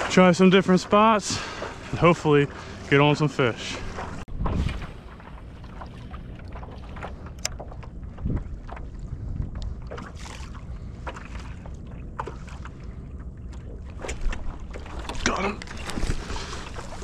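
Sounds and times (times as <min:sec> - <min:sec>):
water washing against hull: 0:00.0 - 0:17.0
wind rumbling on microphone: 0:03.8 - 0:17.0.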